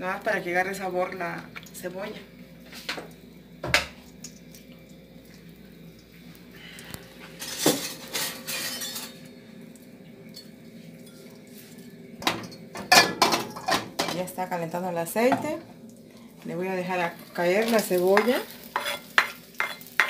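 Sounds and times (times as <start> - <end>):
faint steady hum: 0.0 - 20.0
kitchenware knocks and clinks: 12.2 - 14.2.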